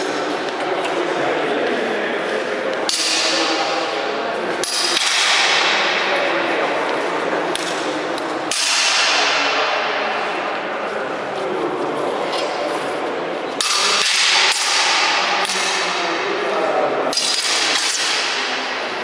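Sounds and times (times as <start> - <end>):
indistinct voices: 0.0 - 19.0
swords clashing: 2.9 - 3.6, 4.6 - 5.9, 8.5 - 9.6, 13.6 - 16.0, 17.1 - 18.6.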